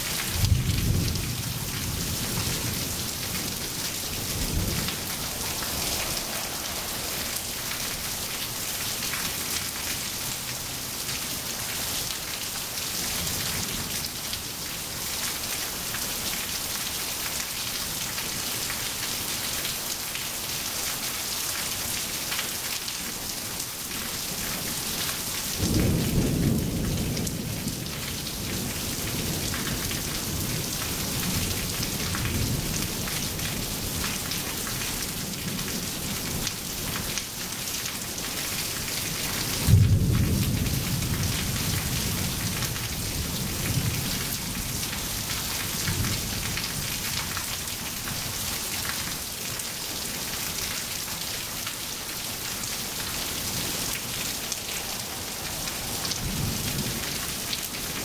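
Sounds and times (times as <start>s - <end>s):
rain on wet pavement: 0.0s - 58.0s
thunder rumbling: 0.2s - 9.6s, 39.5s - 44.9s.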